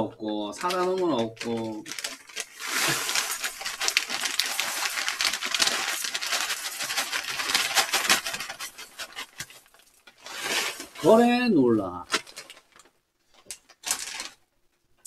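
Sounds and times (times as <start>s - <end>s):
plastic bag crinkling: 0.5s - 14.4s
granola rattling into bowl: 0.6s - 11.2s.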